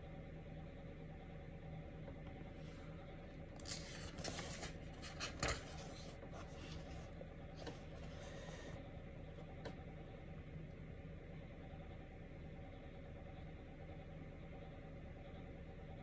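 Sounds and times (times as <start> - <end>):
faint steady hum: 0.0 - 16.0
book page turning: 3.6 - 8.2.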